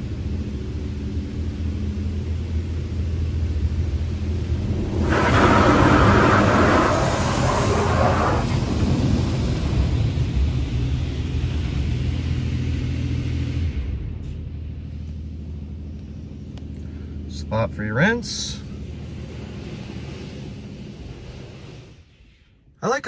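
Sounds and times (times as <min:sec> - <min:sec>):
low steady hum: 0:00.0 - 0:23.0
water spray hissing on truck: 0:04.3 - 0:11.0, 0:18.2 - 0:22.4.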